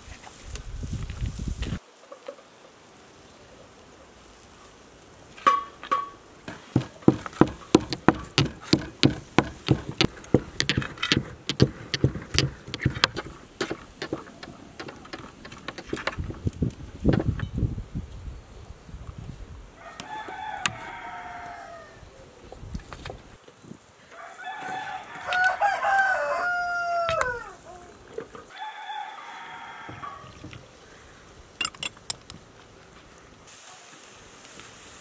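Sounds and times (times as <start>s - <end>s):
pestle knocking in stone mortar: 6.5s - 16.4s.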